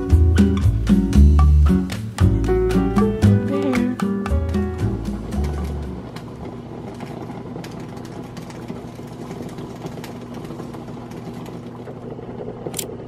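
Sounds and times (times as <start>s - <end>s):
background music: 0.0s - 6.2s.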